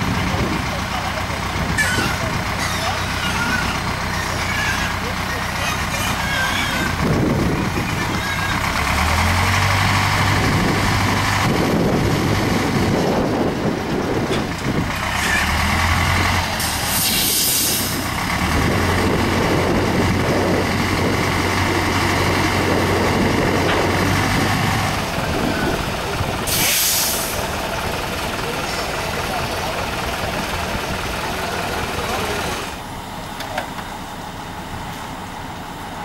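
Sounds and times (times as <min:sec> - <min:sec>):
diesel truck engine running: 0:00.0 - 0:36.0
air hiss: 0:16.7 - 0:18.0, 0:26.5 - 0:27.4.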